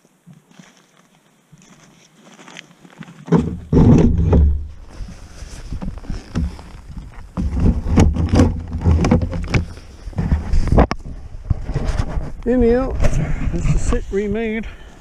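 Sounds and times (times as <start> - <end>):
low rumbling: 3.5 - 14.8
jacket rustling against microphone: 4.5 - 12.4.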